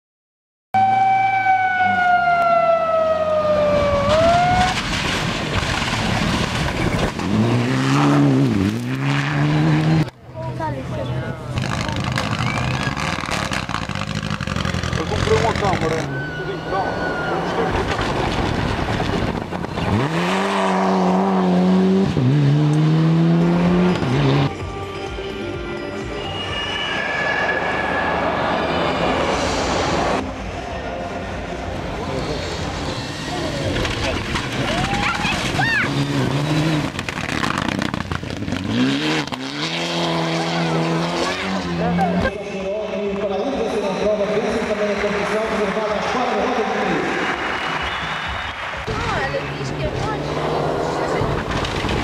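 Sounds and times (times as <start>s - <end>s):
rally car engine: 0.8s - 24.6s, 26.4s - 52.0s
lower engine note: 11.3s - 34.6s.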